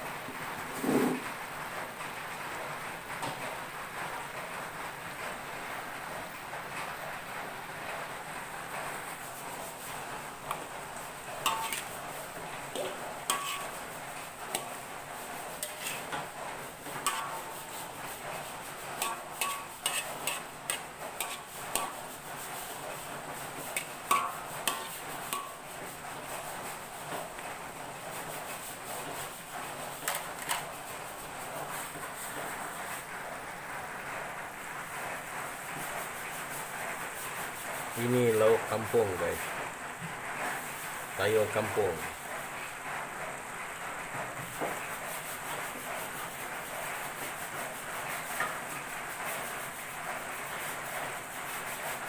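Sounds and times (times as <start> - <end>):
steady hiss of frying: 0.0 - 52.0
metal spatula clinking on wok: 11.5 - 11.9, 12.8 - 13.7, 19.0 - 20.4.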